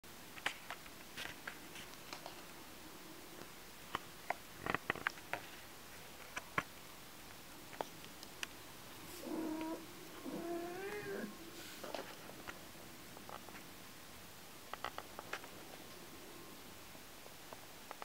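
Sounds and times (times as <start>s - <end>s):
kitten mewing: 9.2s - 11.4s.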